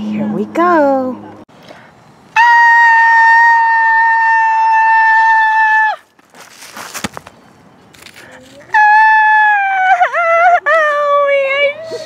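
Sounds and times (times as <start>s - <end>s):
child screaming: 2.4s - 6.0s
plastic doll dropping onto mulch: 6.1s - 8.6s.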